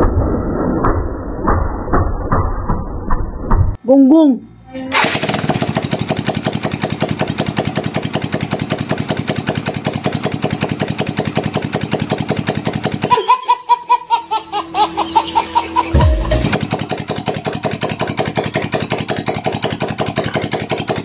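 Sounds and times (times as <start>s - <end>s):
scooter engine running: 4.9s - 21.0s
baby giggling: 13.0s - 16.5s.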